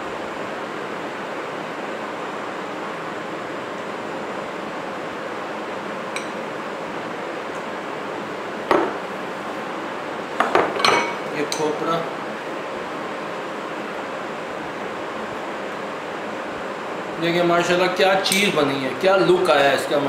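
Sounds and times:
glass bowls clinking: 6.1 - 6.4, 10.4 - 11.6.

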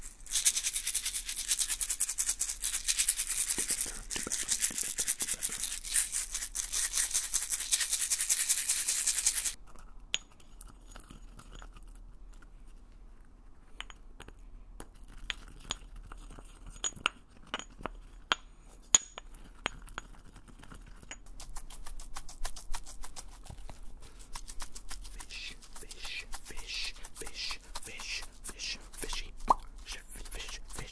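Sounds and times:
glass jar rattling when shaken: 0.0 - 9.6, 24.3 - 30.9.

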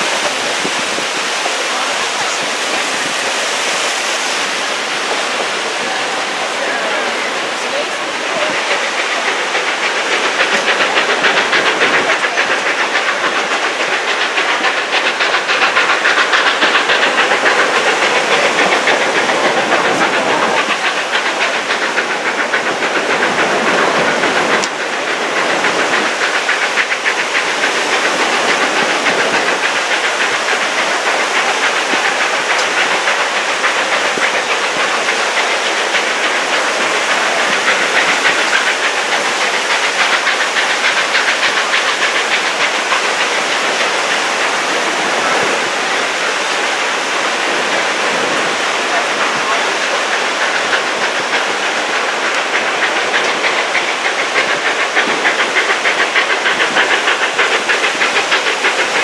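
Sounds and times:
steam locomotive exhaust rushing: 0.0 - 59.0
train wheels clicking on rails: 0.0 - 59.0.

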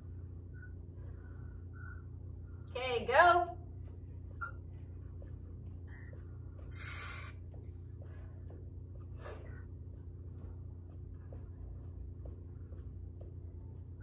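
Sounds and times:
low hum: 0.0 - 14.0
hissing burst: 6.7 - 7.4.

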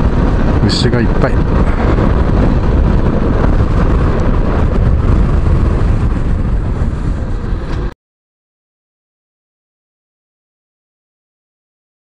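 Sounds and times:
motorcycle engine running: 0.0 - 7.9
wind rumbling on microphone: 0.0 - 8.0.

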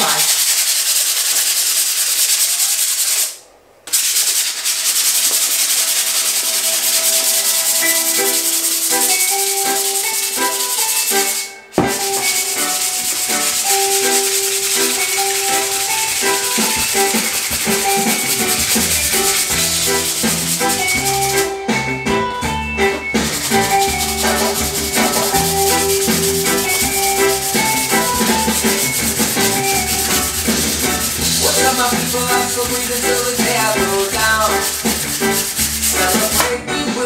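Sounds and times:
sandpaper rasping on wood: 0.0 - 21.5, 23.3 - 36.5
music with plucked notes: 7.7 - 37.0.

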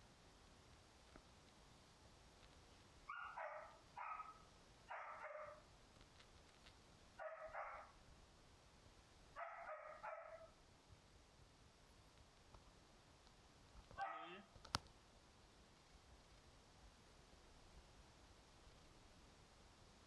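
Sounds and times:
dog barking: 3.1 - 5.6, 7.2 - 8.0, 9.4 - 10.6, 14.0 - 14.5.

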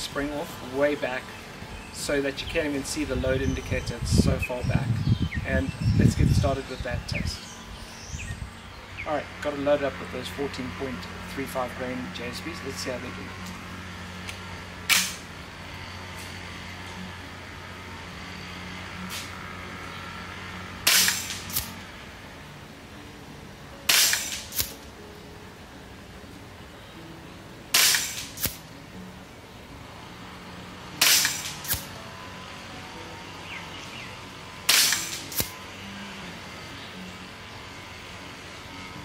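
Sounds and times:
air rifle shot crack: 20.8 - 21.7, 23.9 - 24.8, 27.7 - 28.6, 31.0 - 31.9, 34.7 - 35.5
pellet striking target: 23.9 - 24.8, 27.7 - 28.6, 31.0 - 31.9, 34.7 - 35.5.

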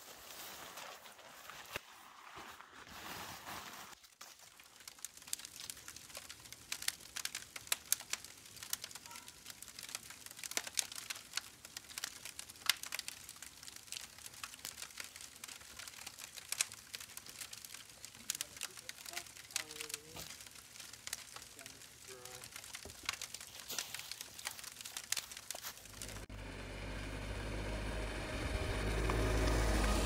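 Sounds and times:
nylon tent fly rustling: 0.0 - 6.2, 21.2 - 26.3
campfire crackling and popping: 4.0 - 26.3.

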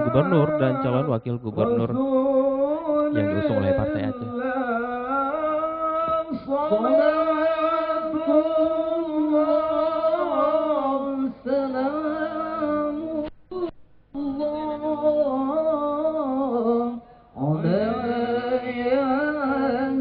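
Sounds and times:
men chanting: 0.0 - 2.1, 3.0 - 13.0.

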